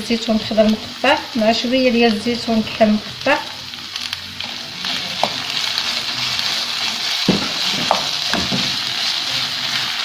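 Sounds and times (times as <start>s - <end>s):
food sizzling in a frying pan: 0.0s - 10.0s
wooden spoon scraping a pan: 4.4s - 10.0s.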